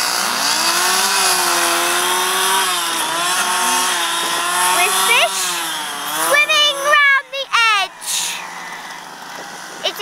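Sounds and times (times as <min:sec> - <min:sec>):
chainsaw engine running: 0:00.0 - 0:10.0.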